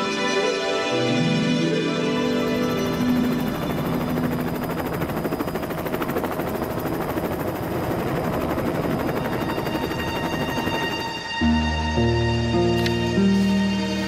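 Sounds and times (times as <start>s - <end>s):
helicopter rotor chopping: 2.2s - 11.4s.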